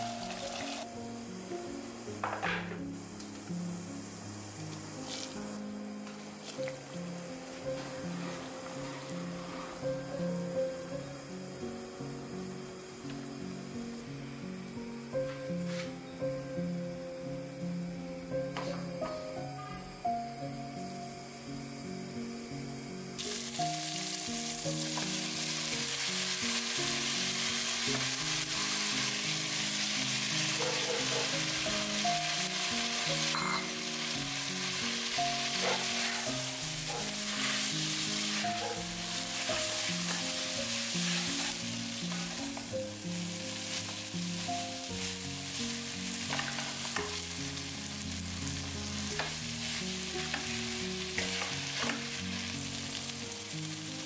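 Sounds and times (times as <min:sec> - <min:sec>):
noodles sizzling in a pot: 0:00.0 - 0:54.0
spatula scraping a pot: 0:39.4 - 0:42.6.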